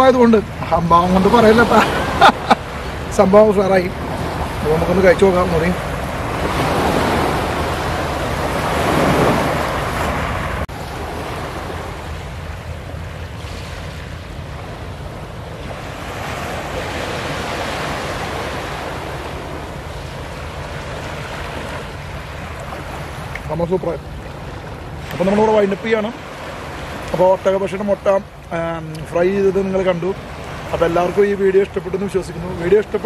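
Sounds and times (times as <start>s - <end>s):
wind on microphone: 0.0s - 23.4s
sea waves washing onto beach: 0.0s - 33.0s.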